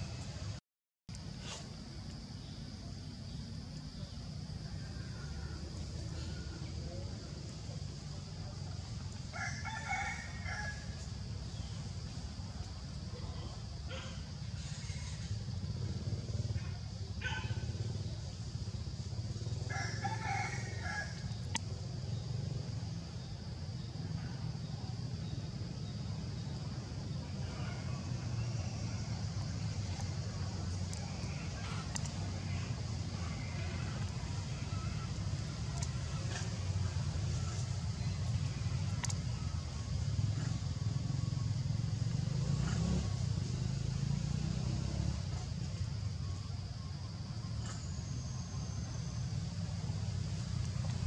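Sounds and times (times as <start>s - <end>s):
low outdoor rumble: 0.0s - 51.0s
rooster crowing: 9.3s - 11.0s, 19.7s - 21.3s
steady low hum: 10.2s - 51.0s.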